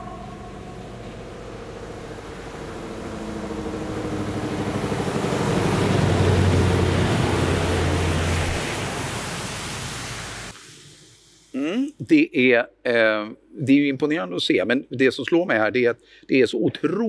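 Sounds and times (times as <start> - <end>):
truck diesel engine passing: 0.0 - 10.5.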